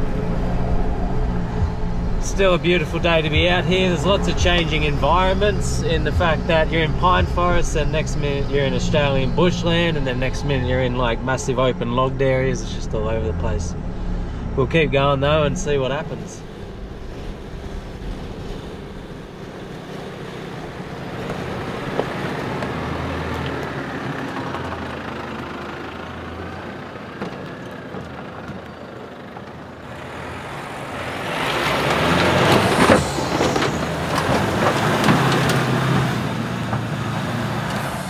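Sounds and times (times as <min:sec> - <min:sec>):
tyres spinning through mud: 0:00.0 - 0:13.8, 0:14.4 - 0:38.0
diesel engine running: 0:00.0 - 0:38.0
crackle of flung mud and stones: 0:21.0 - 0:25.4, 0:27.0 - 0:38.0.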